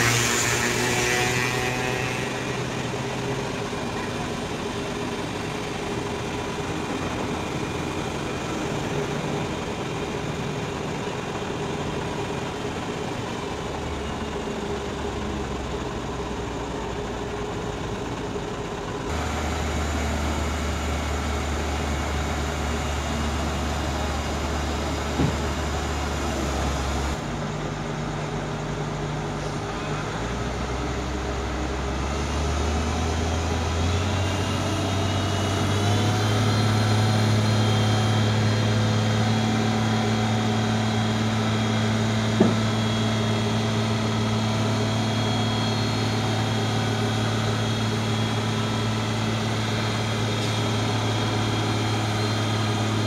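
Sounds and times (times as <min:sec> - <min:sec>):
crane diesel engine droning: 0:00.0 - 0:53.0
sharp knock: 0:42.4 - 0:42.6.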